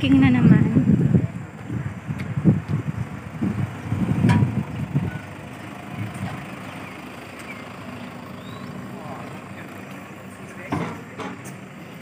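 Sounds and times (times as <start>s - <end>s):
wind rumbling on microphone: 0.0s - 6.7s
road traffic passing: 0.0s - 12.0s.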